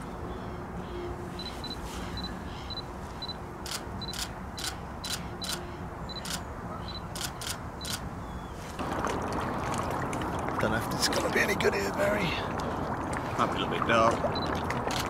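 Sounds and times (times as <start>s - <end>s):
camera shutter clicks: 3.7s - 6.4s, 7.1s - 8.0s.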